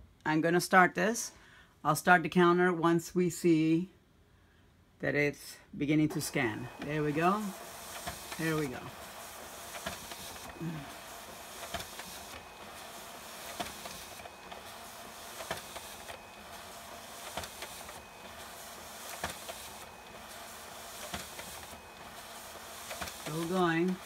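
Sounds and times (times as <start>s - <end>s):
document feeder whirring: 6.1s - 24.0s
sheet feed clicks: 6.1s - 24.0s.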